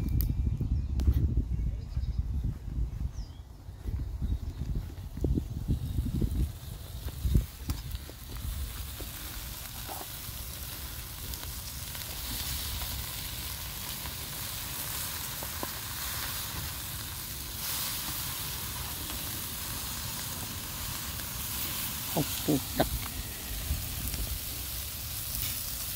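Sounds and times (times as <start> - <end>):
burger patties sizzling on grill: 5.3 - 25.9.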